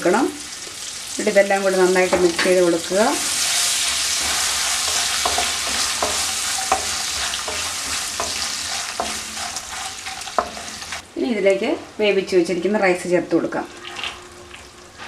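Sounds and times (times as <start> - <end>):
hot oil sizzling in a wok: 0.0 - 11.1
spatula knocking against pan: 4.2 - 10.8.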